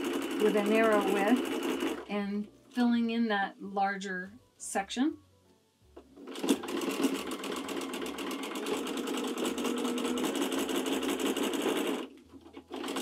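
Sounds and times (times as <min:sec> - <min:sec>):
sewing machine stitching: 0:00.0 - 0:02.1, 0:06.2 - 0:13.0.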